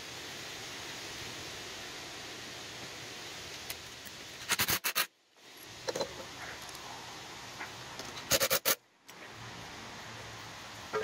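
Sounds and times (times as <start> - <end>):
steady hiss: 0.0 - 11.0
sharp metallic clicks and clatter: 4.4 - 5.1, 8.0 - 8.8.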